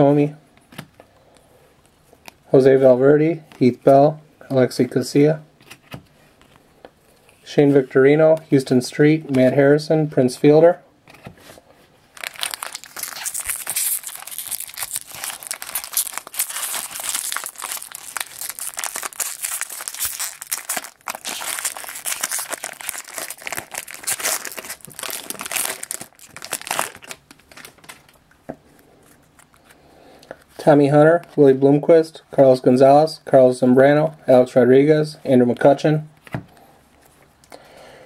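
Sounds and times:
foil wrapper crinkling and tearing: 12.1 - 28.2.

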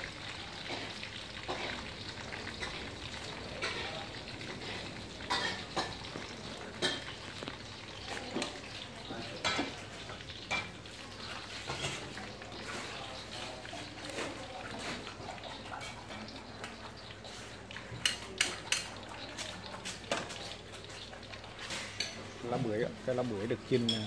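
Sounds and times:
hot oil hissing: 0.0 - 24.0.

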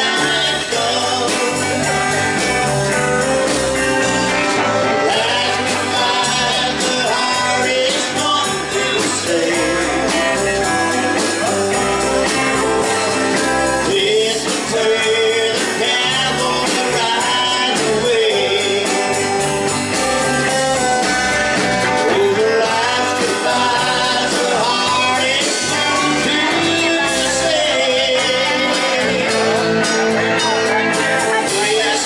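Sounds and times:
bass guitar: 0.0 - 32.0
drum kit steady beat: 0.0 - 32.0
electric guitars: 0.0 - 32.0.

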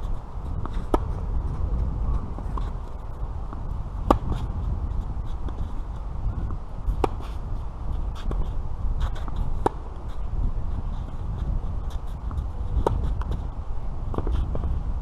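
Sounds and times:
steady low rumble: 0.0 - 15.0
tennis rackets hitting ball: 0.1 - 1.2, 2.3 - 4.6, 6.9 - 10.2, 11.9 - 13.4.

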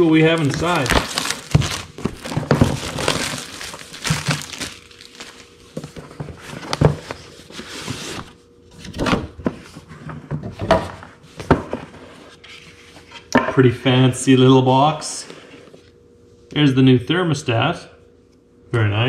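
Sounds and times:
plastic wrap crinkling: 0.0 - 6.0.

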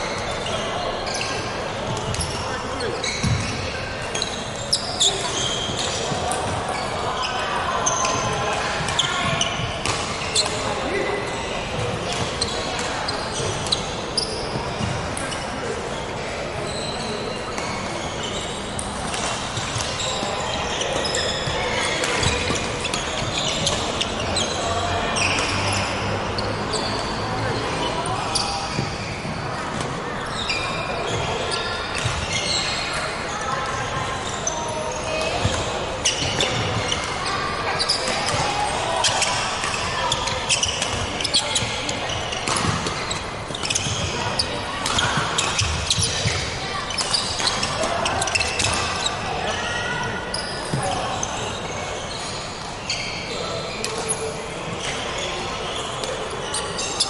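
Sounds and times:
indoor crowd chatter: 0.0 - 57.0
shoes squeaking on wooden floor: 2.0 - 8.2, 34.2 - 53.3.

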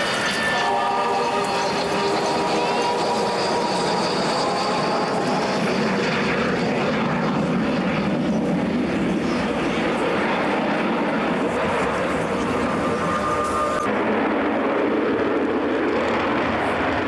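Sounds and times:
jet bomber flying past: 0.0 - 17.0.

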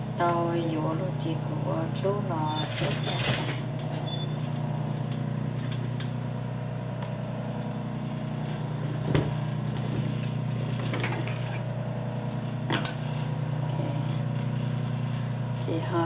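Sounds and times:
sewing machine motor humming: 0.0 - 16.0.

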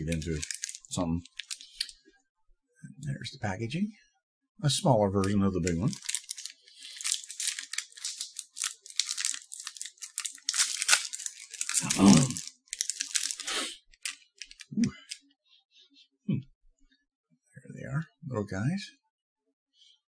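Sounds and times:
plastic wrapper crinkling: 0.0 - 2.0, 5.2 - 15.2.

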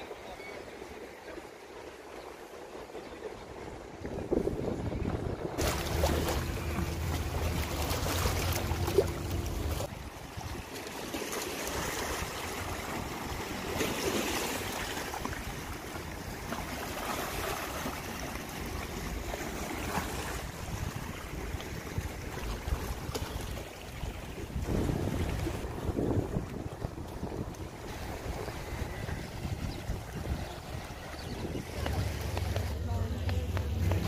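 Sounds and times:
waves lapping against rocks: 0.1 - 34.0
wind buffeting microphone: 3.6 - 10.7, 19.0 - 34.0
low steady hum: 5.6 - 9.9.

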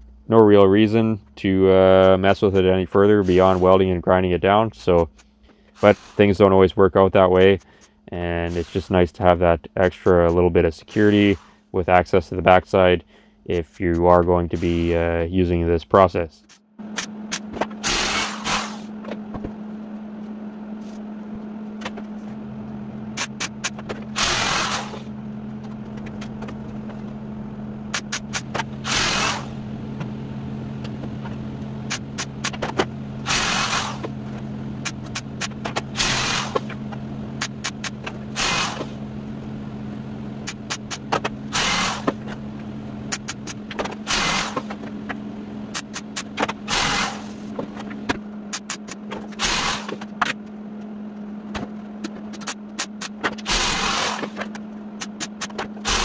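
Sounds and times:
steady low hum: 0.0 - 56.0
welding bursts: 17.0 - 18.9, 23.2 - 25.1, 27.9 - 29.6, 33.2 - 34.1, 34.8 - 36.8, 37.4 - 39.0, 40.4 - 42.3, 43.1 - 44.8, 45.7 - 47.5, 48.5 - 50.0, 52.4 - 54.4, 55.0 - 56.0.

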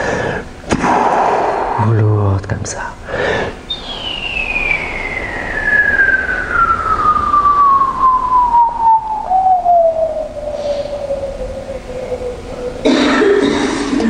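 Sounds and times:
falling whistle-like tone: 3.7 - 13.1.

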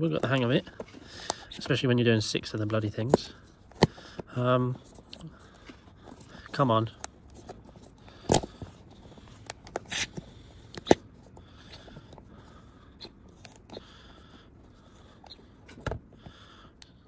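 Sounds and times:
rubber tyre rubbing and scraping: 5.8 - 11.2.

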